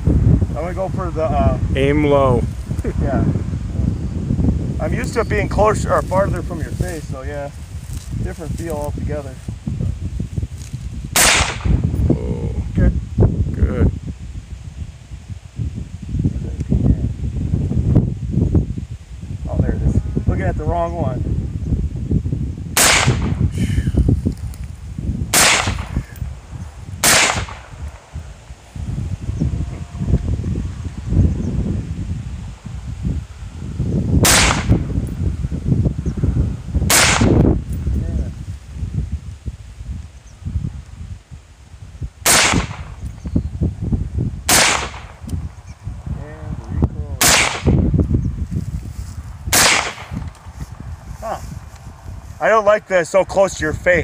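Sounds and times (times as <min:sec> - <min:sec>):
rifle shots: 0:11.2 - 0:11.8, 0:22.8 - 0:23.4, 0:25.3 - 0:26.0, 0:27.0 - 0:27.7, 0:34.2 - 0:34.8, 0:36.9 - 0:37.4, 0:42.2 - 0:42.9, 0:44.5 - 0:45.2, 0:47.2 - 0:47.8, 0:49.5 - 0:50.1.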